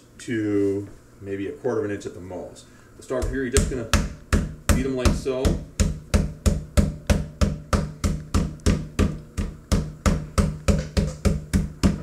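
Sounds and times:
metal mallet pounding meat: 0:03.1 - 0:12.0.

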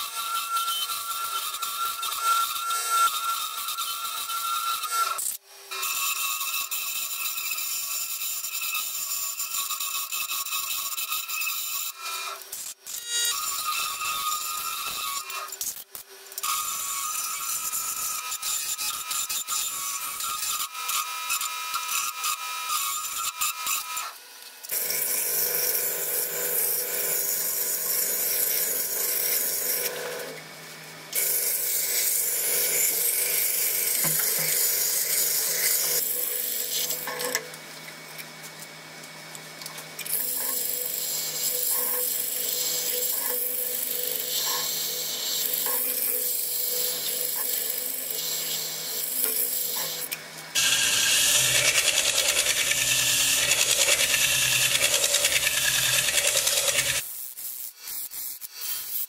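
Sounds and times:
tool scraping wooden bowl: 0:40.2 - 0:57.0
wood lathe humming: 0:46.3 - 0:57.0.

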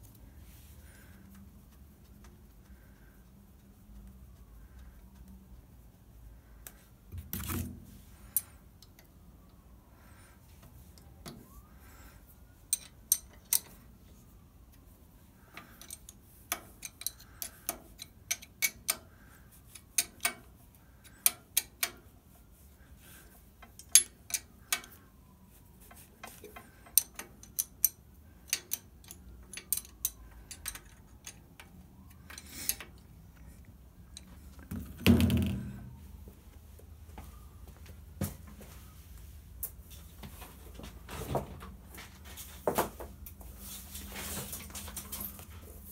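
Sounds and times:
metal tools clinking on metal: 0:12.7 - 0:13.7, 0:26.6 - 0:31.5.

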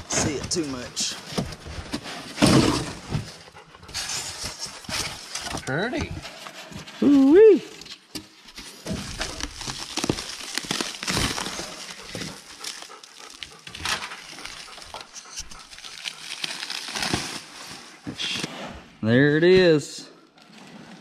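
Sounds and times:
plastic wrapping crinkling and tearing: 0:08.7 - 0:18.0.

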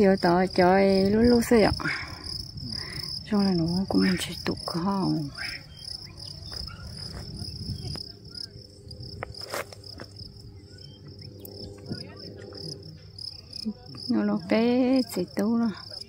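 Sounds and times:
insects trilling: 0:00.0 - 0:16.0.

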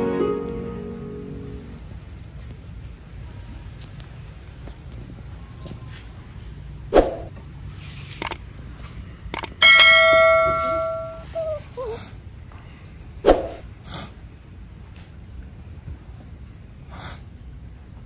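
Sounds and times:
quick mouse clicks: 0:08.2 - 0:08.4, 0:09.3 - 0:09.5
bell ding: 0:09.6 - 0:11.4.

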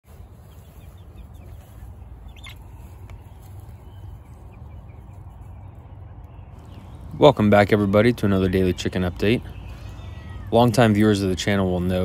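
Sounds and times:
chicks peeping: 0:00.1 - 0:12.0.

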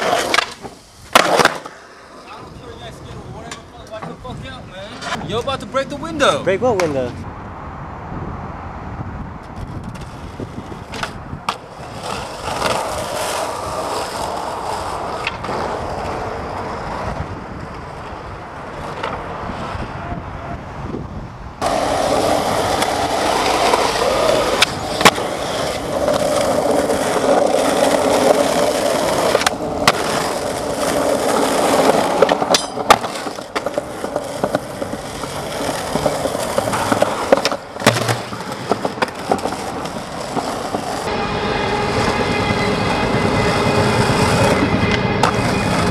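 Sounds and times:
skateboard clacking on ground: 0:00.0 - 0:02.7, 0:03.4 - 0:05.6, 0:06.7 - 0:07.2, 0:09.4 - 0:19.3, 0:21.6 - 0:41.1, 0:44.1 - 0:45.9
skateboard wheels rolling: 0:00.0 - 0:07.7, 0:08.3 - 0:45.9.

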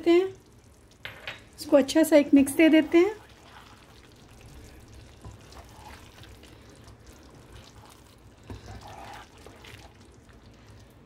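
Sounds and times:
wooden spatula stirring thick curry: 0:02.3 - 0:10.9.

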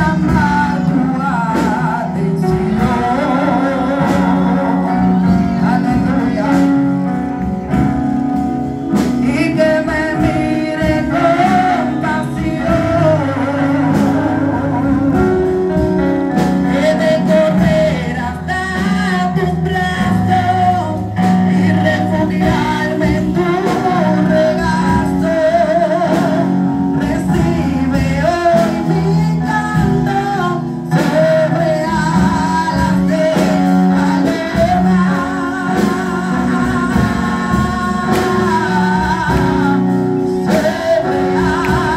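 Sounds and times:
keyboard accompaniment: 0:00.0 - 0:41.9
woman singing gospel song: 0:09.0 - 0:15.6, 0:16.7 - 0:41.9.

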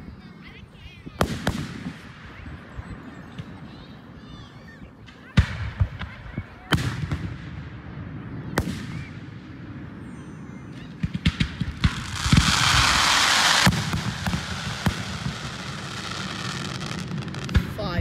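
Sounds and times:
firework shells bursting: 0:11.0 - 0:17.7
firework crackling: 0:11.0 - 0:18.0.

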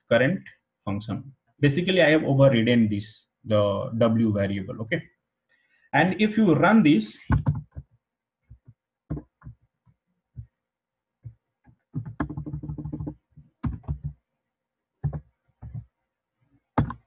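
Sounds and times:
keyboard typing: 0:07.3 - 0:07.9, 0:08.5 - 0:09.6, 0:11.9 - 0:14.2, 0:15.0 - 0:15.9, 0:16.8 - 0:17.0.

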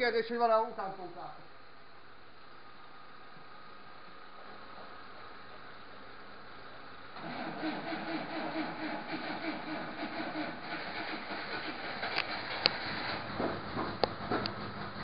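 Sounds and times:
car engine starting and running: 0:07.2 - 0:15.0
sharp clacks: 0:07.2 - 0:15.0.

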